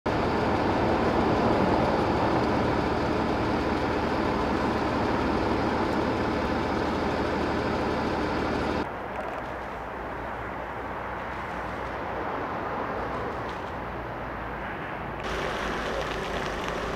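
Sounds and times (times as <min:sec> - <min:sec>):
vehicle engine idling: 0:00.1 - 0:11.9, 0:15.2 - 0:16.9.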